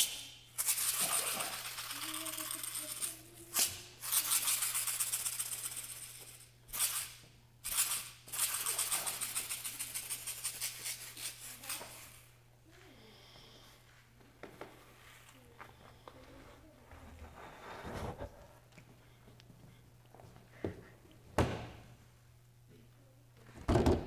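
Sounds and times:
shaker rattling: 0.0 - 12.4.

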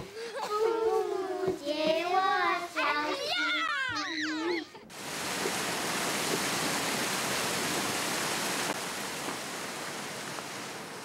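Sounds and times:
waterfall over rocks: 4.9 - 11.0.

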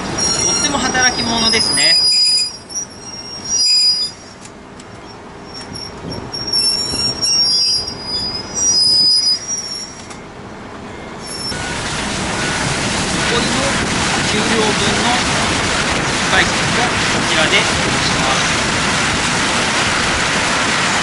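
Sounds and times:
train wheels squealing: 0.0 - 10.3, 10.9 - 11.8
low rumble of train: 0.0 - 21.0.

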